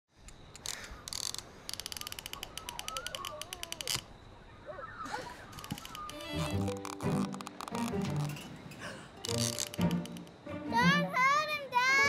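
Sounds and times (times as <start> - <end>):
fishing reel clicking: 0.6 - 4.1, 9.2 - 10.3
thin wavering squeaks: 1.1 - 4.1, 5.0 - 10.4.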